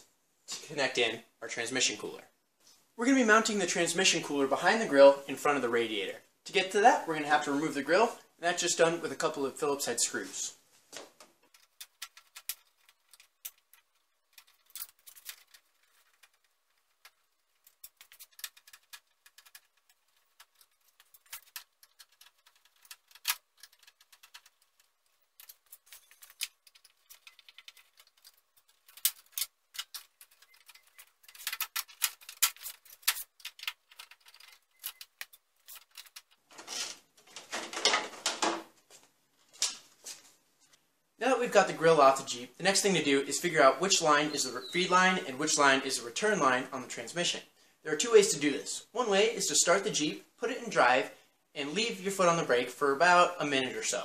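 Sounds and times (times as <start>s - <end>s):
plastic grille rattling: 11.5s - 38.6s.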